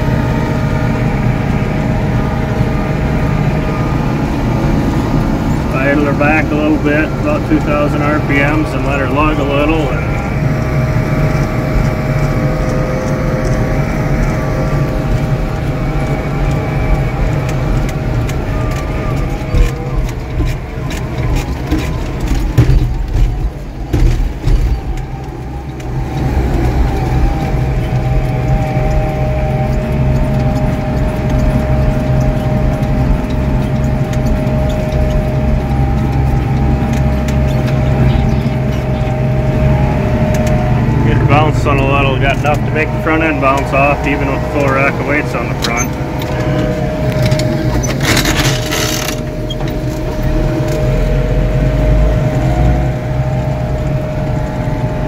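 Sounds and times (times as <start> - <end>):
tractor diesel engine droning: 0.0 - 55.0
loud knocks and rattles: 9.8 - 40.6.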